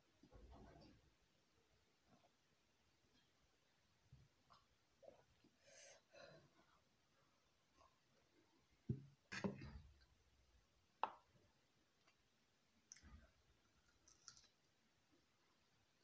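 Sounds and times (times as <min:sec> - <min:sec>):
meat handled and bitten: 0:12.8 - 0:14.8.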